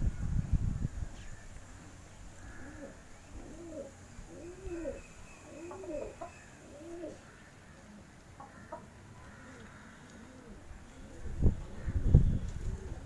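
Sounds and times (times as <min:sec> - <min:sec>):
pigeon cooing: 0:02.4 - 0:07.2, 0:08.7 - 0:13.0.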